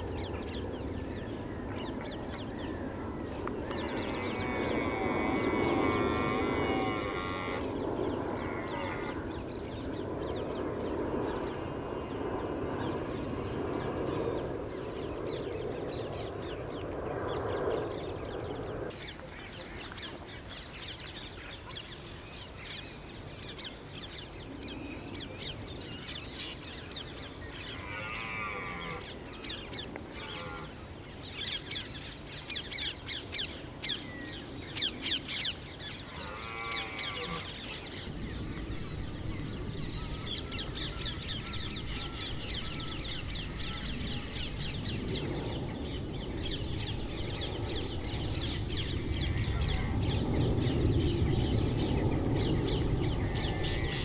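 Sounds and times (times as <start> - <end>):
birds calling: 0.0 - 54.0
low steady rumble: 37.0 - 54.0.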